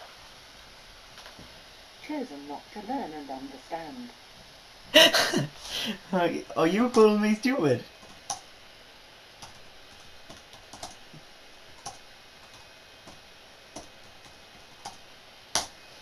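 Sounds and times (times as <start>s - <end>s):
keyboard keystrokes: 15.6s - 15.8s.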